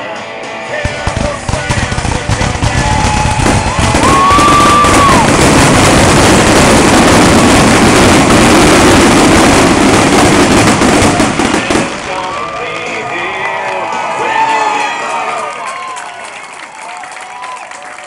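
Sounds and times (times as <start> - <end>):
fireworks bursting and crackling: 0.8 - 13.8
whistling firework shell: 1.7 - 7.3.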